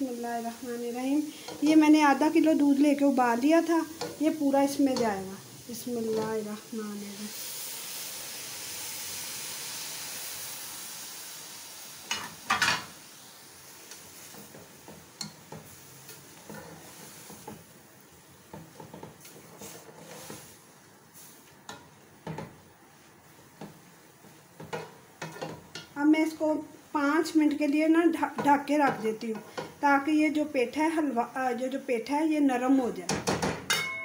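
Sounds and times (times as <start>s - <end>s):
milk hissing in hot pot: 0.0s - 24.6s
spatula tapping and scraping: 1.4s - 1.8s, 3.6s - 5.3s, 6.0s - 6.4s, 13.9s - 17.7s, 18.4s - 20.5s, 21.6s - 22.6s, 23.5s - 26.0s, 28.3s - 29.8s.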